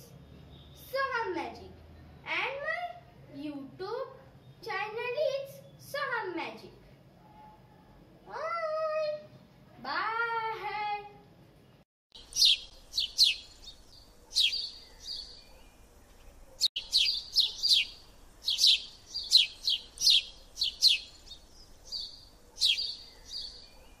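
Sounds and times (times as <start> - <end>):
bird chirping: 11.6 - 24.0.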